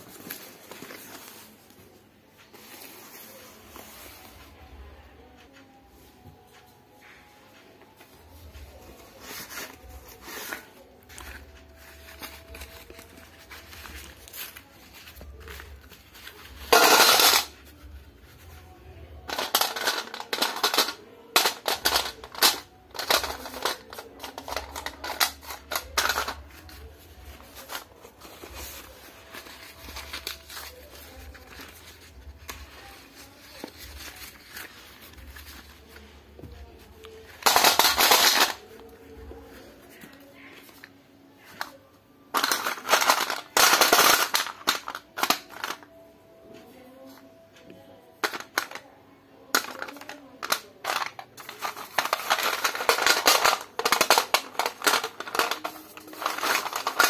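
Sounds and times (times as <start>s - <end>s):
paper packets tearing and rustling: 0.0s - 1.8s, 9.0s - 17.9s, 19.3s - 40.9s, 42.4s - 45.9s, 49.6s - 57.0s
pencils clattering into metal plate: 9.3s - 17.8s, 19.3s - 36.1s, 37.3s - 38.8s, 42.3s - 45.9s, 48.2s - 48.9s, 49.5s - 57.0s.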